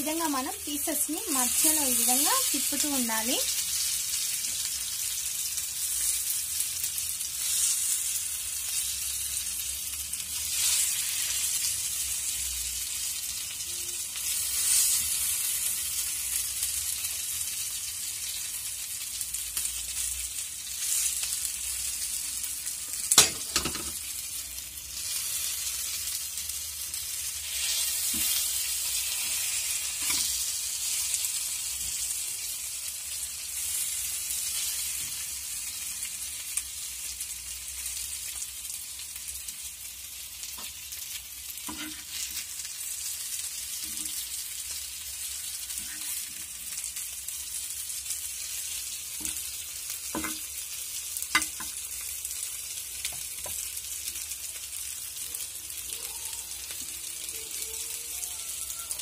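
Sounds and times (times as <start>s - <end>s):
chicken sizzling in oil: 0.0s - 59.0s
metal spatula scraping a pan: 41.6s - 42.4s, 45.6s - 46.5s.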